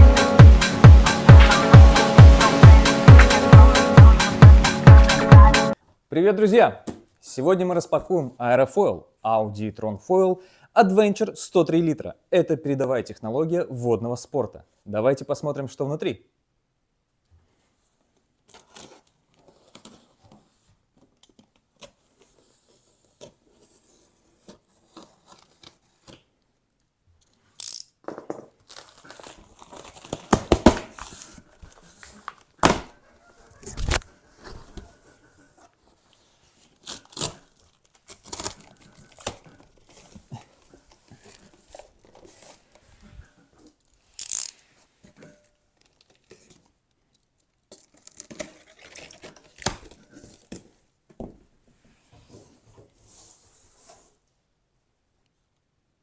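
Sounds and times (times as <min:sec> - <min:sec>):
cardboard rustling: 0:18.4 - 0:26.4, 0:28.5 - 0:44.0, 0:47.7 - 0:50.9
packing tape tearing: 0:28.6 - 0:32.9, 0:33.7 - 0:34.1, 0:36.6 - 0:42.7, 0:44.0 - 0:44.6, 0:47.7 - 0:50.6.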